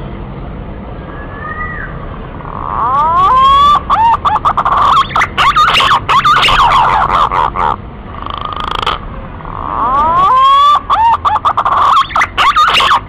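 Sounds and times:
pigeon whistling song: 0:02.6 - 0:07.8, 0:09.6 - 0:13.0.

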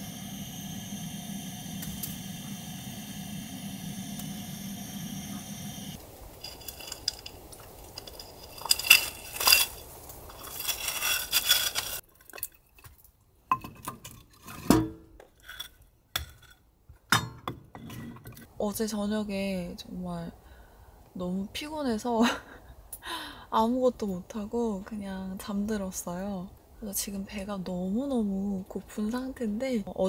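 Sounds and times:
steady drone of even tones: 0:00.0 - 0:06.0
light knocks and clinks: 0:06.4 - 0:13.9
firewood pieces knocking together: 0:06.4 - 0:14.2.

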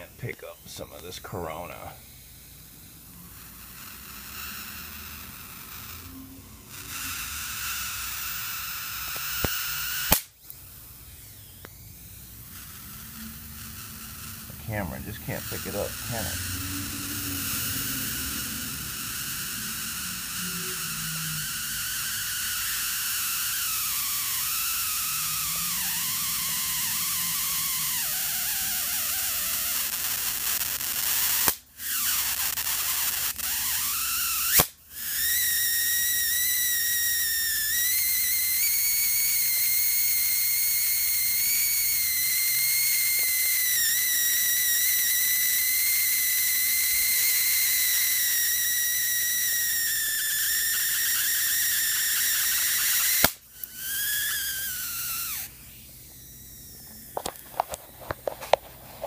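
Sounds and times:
high-voltage hiss and whine: 0:00.0 - 0:59.0
sharp click: 0:09.1 - 0:10.6, 0:52.0 - 0:54.4.

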